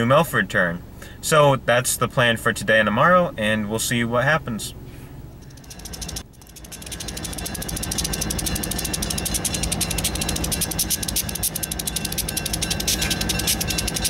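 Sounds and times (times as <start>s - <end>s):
diesel locomotive engines rumbling: 4.2s - 14.0s
rapid even clicking: 5.4s - 14.0s.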